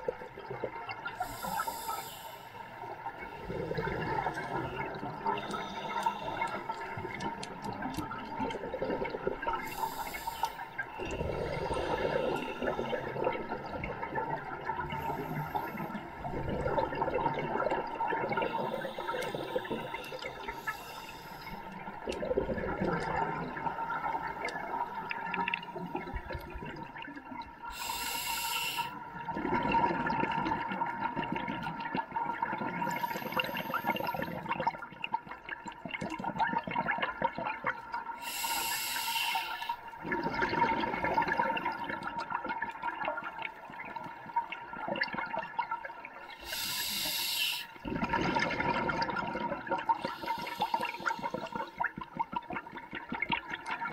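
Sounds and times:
gurgling exhaled bubbles: 0.0 - 28.0, 29.1 - 38.5, 40.0 - 53.9
hissing regulator inhales: 1.2 - 2.6, 5.3 - 6.9, 9.6 - 13.2, 14.9 - 16.0, 18.5 - 21.7, 27.7 - 29.0, 32.8 - 34.3, 38.2 - 39.8, 46.4 - 47.8, 50.0 - 51.8.

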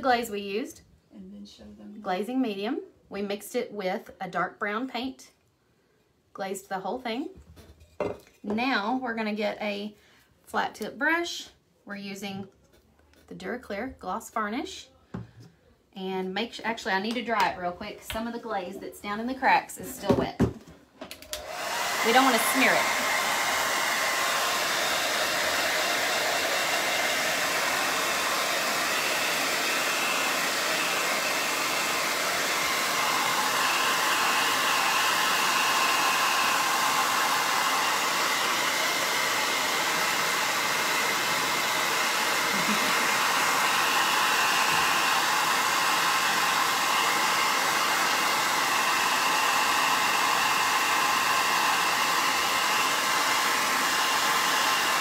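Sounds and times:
hair dryer blowing: 21.2 - 55.0.

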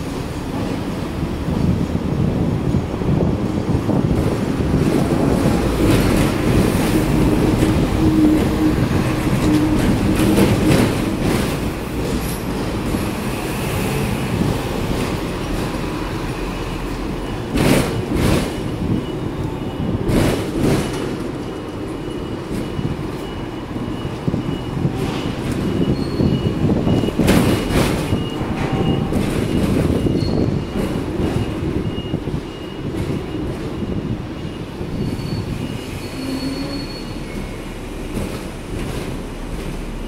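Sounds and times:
tram wheels rumbling on rails: 0.0 - 40.0.

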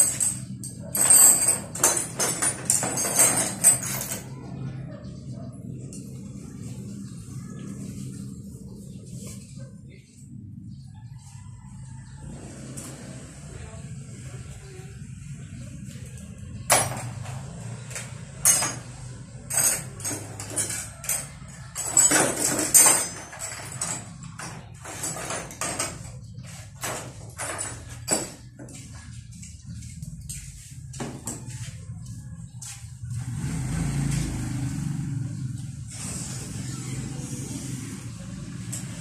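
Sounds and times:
metal tools clinking and rattling: 0.0 - 4.7, 16.2 - 32.1, 38.4 - 39.0.

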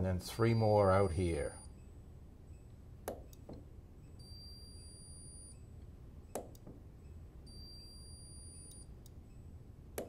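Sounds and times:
high electronic beep: 4.0 - 5.7, 7.0 - 9.5.

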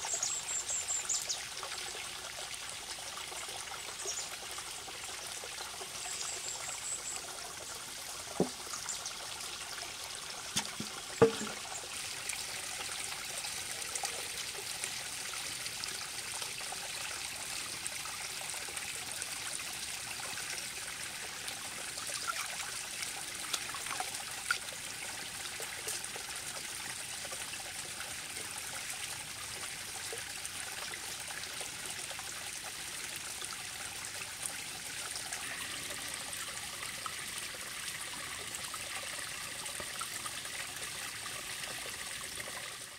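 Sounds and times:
stream water running: 0.0 - 42.9
sharp knocks: 10.6 - 11.6.

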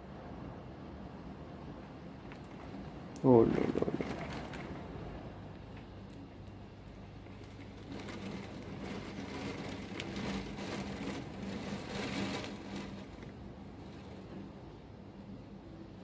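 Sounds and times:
torrential rain pouring: 2.3 - 5.5, 6.9 - 14.4.

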